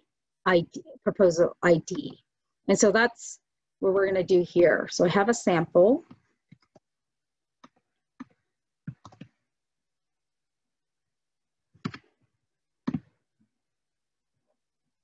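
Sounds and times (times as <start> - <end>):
computer keyboard and mouse clicks: 7.6 - 9.4, 11.8 - 12.1.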